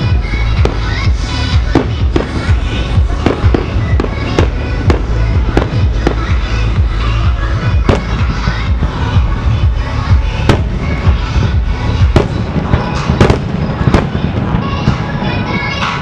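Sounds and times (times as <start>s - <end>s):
music playing: 0.0s - 16.0s
firework shells bursting: 12.1s - 15.2s.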